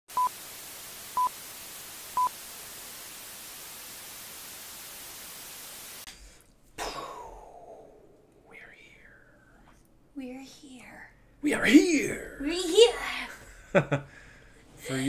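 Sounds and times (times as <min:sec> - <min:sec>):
static hiss: 0:00.1 - 0:06.4.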